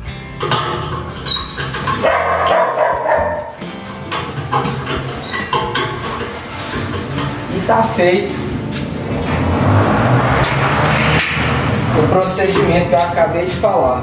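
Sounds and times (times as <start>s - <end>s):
background music: 0.0s - 14.0s
dog barking: 2.0s - 3.6s.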